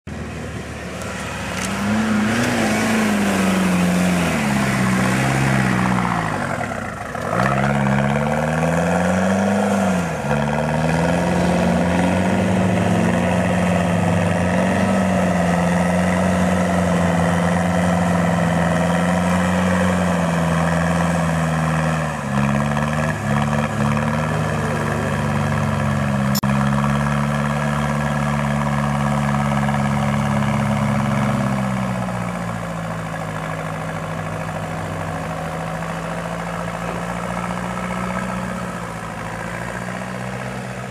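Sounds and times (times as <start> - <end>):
engine revving hard: 1.0 - 32.1.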